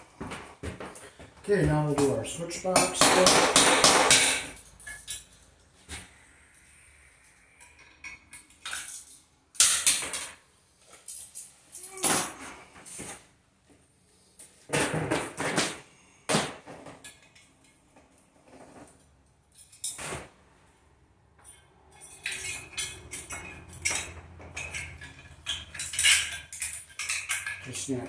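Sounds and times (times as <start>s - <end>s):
rattling metal clinks: 4.1s - 5.8s, 21.4s - 28.0s.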